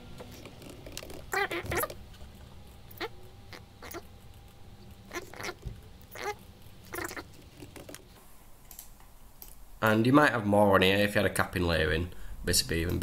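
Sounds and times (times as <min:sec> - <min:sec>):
low steady hum: 0:00.0 - 0:13.0
small animal chirping: 0:01.0 - 0:07.8.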